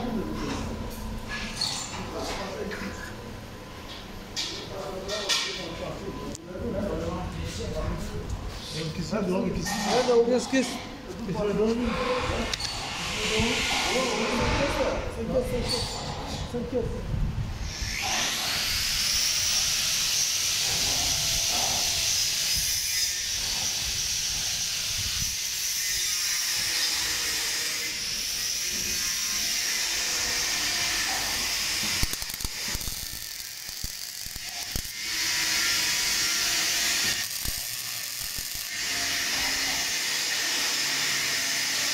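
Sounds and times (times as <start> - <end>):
welding arc crackling and hissing: 17.6 - 41.9.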